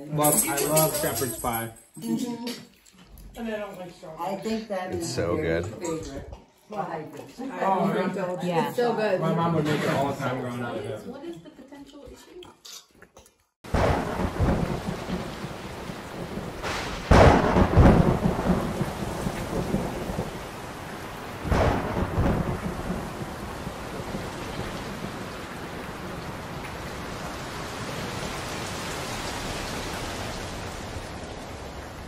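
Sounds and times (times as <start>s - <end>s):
thunder rumbling: 13.7s - 28.7s
steady rain: 13.7s - 32.0s.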